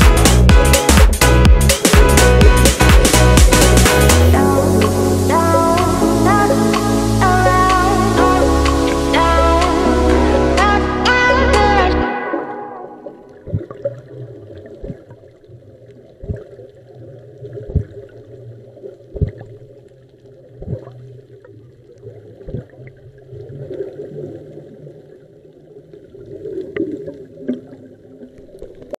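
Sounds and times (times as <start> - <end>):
underwater bubbles gurgling: 4.3 - 28.9.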